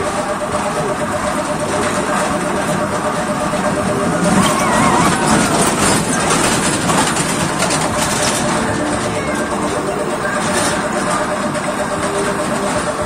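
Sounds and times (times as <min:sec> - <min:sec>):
roller coaster rumbling clatter: 0:00.0 - 0:13.0.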